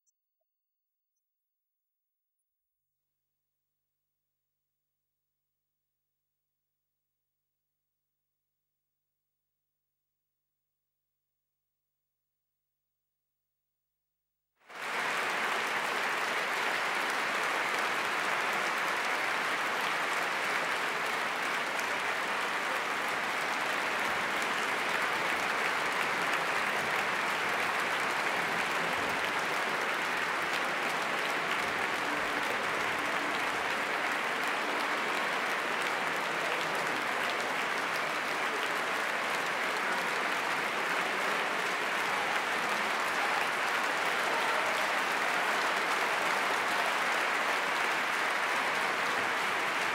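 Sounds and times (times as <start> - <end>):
audience applauding: 14.6 - 49.9.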